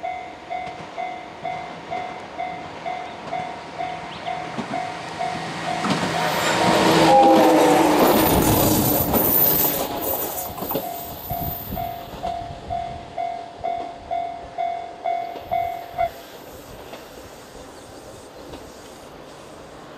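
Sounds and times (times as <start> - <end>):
electric train passing: 0.0 - 19.9.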